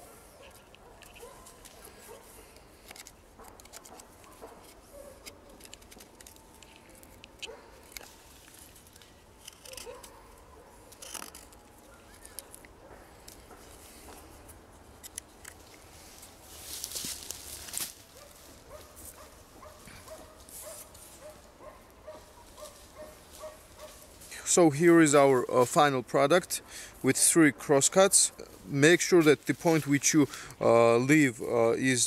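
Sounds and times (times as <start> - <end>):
knife scraping wood: 0.5 - 8.8, 9.4 - 10.2, 10.9 - 12.6.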